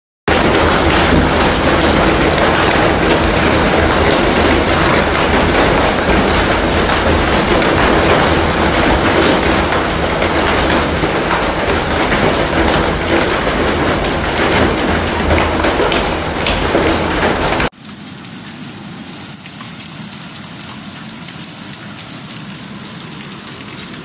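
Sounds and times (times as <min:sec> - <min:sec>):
hailstones striking surfaces: 0:00.3 - 0:17.8
hail and heavy rain pelting: 0:00.3 - 0:18.6.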